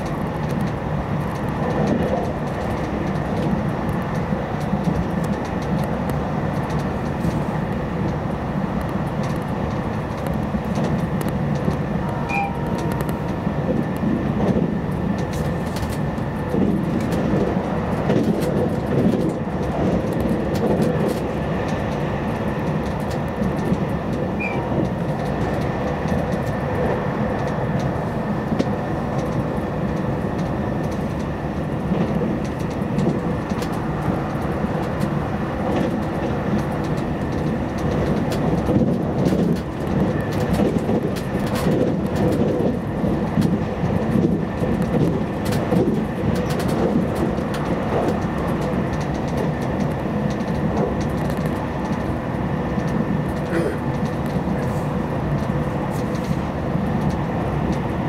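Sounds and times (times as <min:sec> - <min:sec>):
train wheels rumbling on rail: 0:00.0 - 0:58.0
faint high tone: 0:12.2 - 0:12.7.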